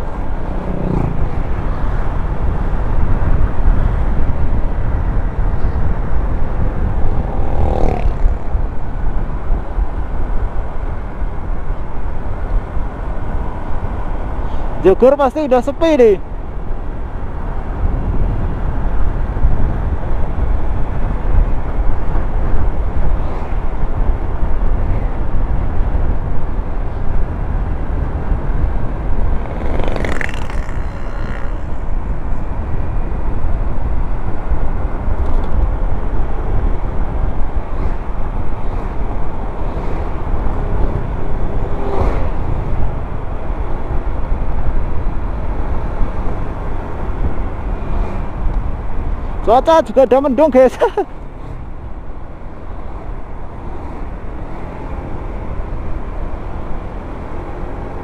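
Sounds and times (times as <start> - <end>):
wind and road noise: 0.0 - 58.0
scooter engine: 29.3 - 32.3.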